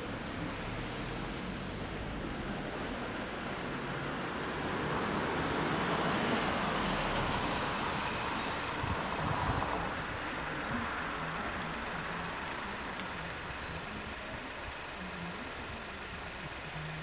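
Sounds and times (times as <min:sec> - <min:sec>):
vehicle passing on street: 0:00.0 - 0:17.0.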